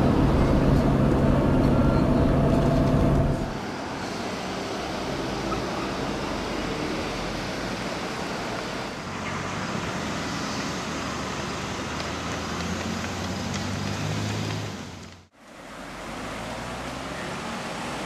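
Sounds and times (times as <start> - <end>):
low engine hum: 0.0 - 3.8
roadside hiss: 0.0 - 18.0.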